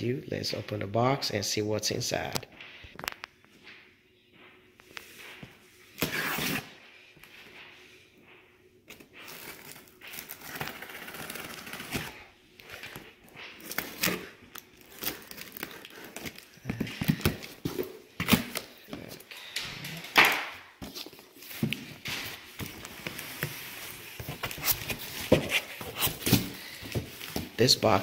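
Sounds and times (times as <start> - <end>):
cardboard scraping and tearing: 6.0 - 6.7
packing tape ripping: 13.6 - 16.6.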